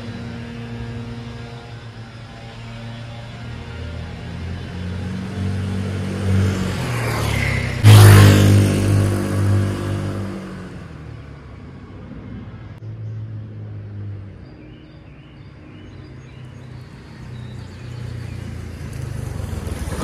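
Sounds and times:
motor scooter passing by: 0.0 - 11.6, 16.2 - 20.0.

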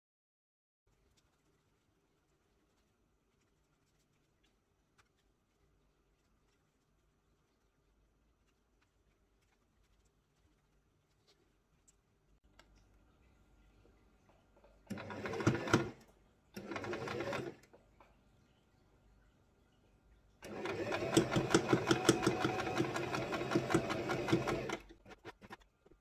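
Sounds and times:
sewing machine stitching: 14.9 - 16.0, 16.6 - 17.8, 20.4 - 25.6.

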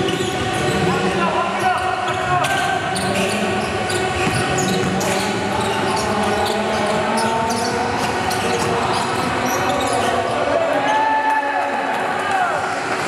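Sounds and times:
basketball bouncing: 4.1 - 5.2.

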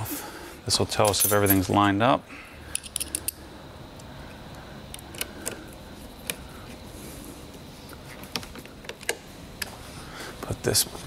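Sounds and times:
low hiss: 0.0 - 11.0.

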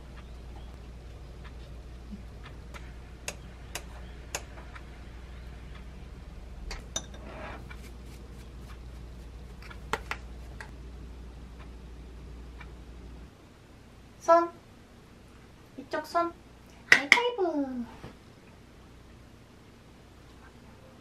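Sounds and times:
low hum: 0.0 - 16.6.

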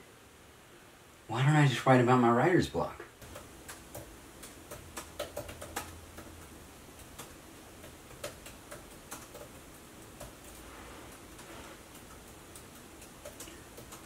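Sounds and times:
laptop keyboard clicks: 3.2 - 9.6.

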